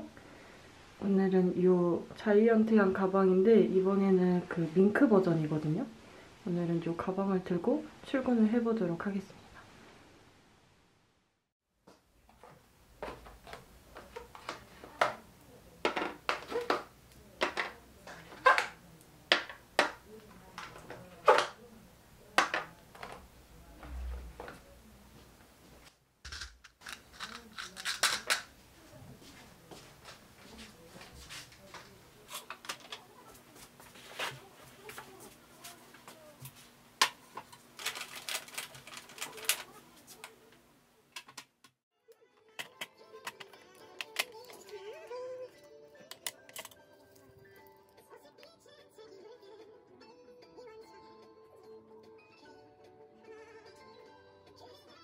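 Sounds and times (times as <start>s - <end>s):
small items clicking and knocking: 15.8s - 18.7s, 26.3s - 28.5s, 37.0s - 40.4s, 42.5s - 44.8s, 46.1s - 46.8s.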